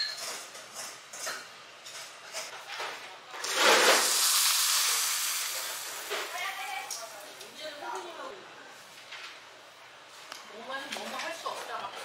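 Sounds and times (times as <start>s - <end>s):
water pouring from kettle: 3.4s - 6.1s
water sizzling on hot stone: 3.4s - 7.7s.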